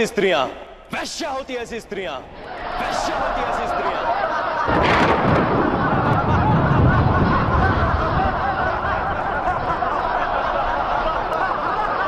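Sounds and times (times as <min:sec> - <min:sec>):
men laughing: 0:03.6 - 0:12.0.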